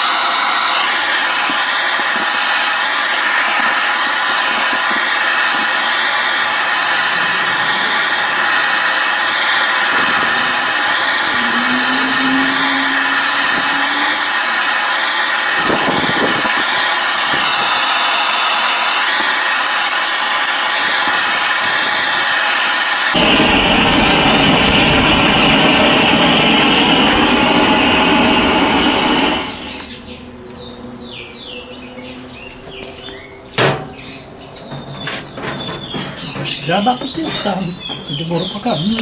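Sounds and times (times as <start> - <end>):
blowtorch hissing: 0.0 - 30.0
short low hum: 6.6 - 16.1.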